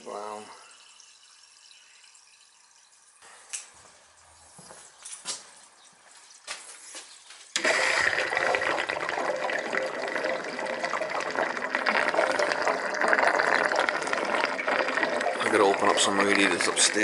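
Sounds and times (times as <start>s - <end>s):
water gushing from a drain: 7.6s - 17.0s.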